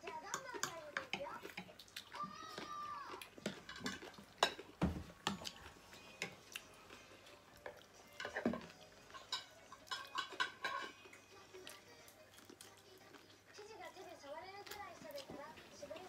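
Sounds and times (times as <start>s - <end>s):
cutlery clinking on ceramic plates: 0.3s - 1.7s, 3.4s - 6.5s, 8.1s - 11.2s.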